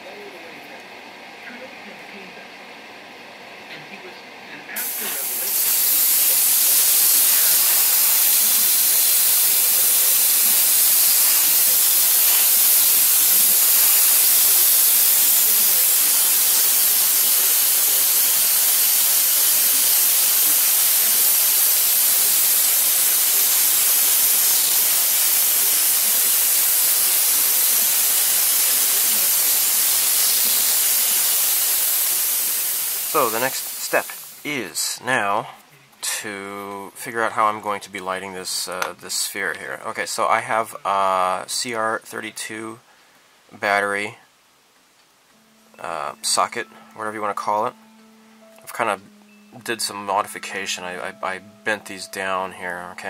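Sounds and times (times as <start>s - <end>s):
airbrush spraying hiss: 4.8s - 34.5s.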